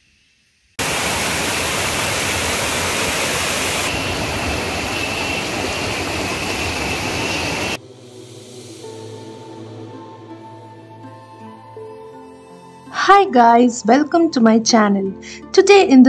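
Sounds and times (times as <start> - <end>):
water rushing over rocks: 0.8 - 6.2.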